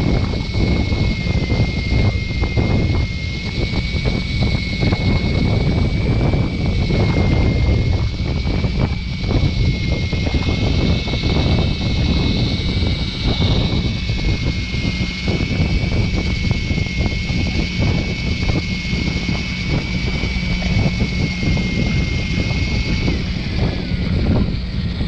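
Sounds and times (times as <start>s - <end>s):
boat engine rumble: 0.0s - 25.0s
electric fishing reel whine: 0.0s - 25.0s.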